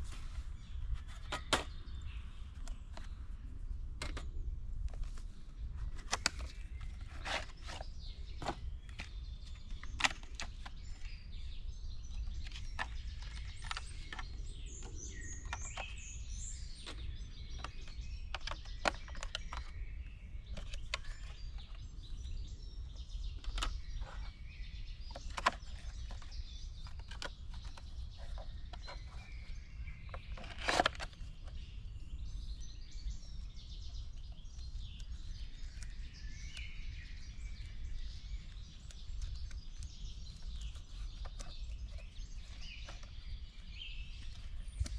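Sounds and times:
birds chirping and calling: 0.0s - 44.9s.

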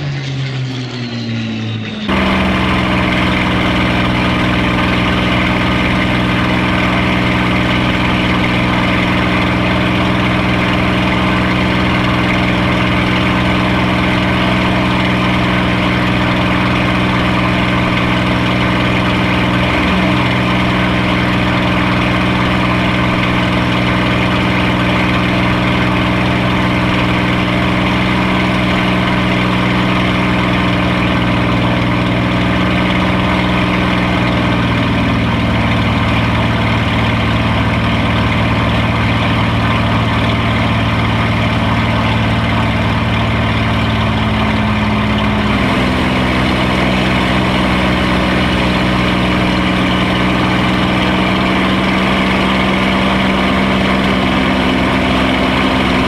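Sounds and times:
aircraft engine drone in cockpit: 0.0s - 56.0s
propeller plane passing by: 0.0s - 56.0s.

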